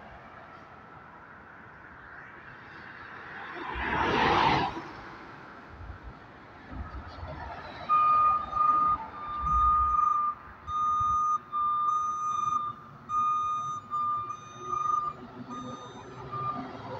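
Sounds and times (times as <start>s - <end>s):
truck rumble: 5.6s - 16.9s
truck reversing alarm beeping: 7.8s - 16.9s.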